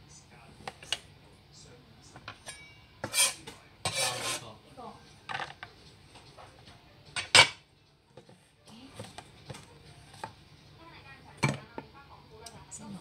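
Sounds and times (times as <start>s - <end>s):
cleaver and tubs scraping: 3.0s - 4.5s.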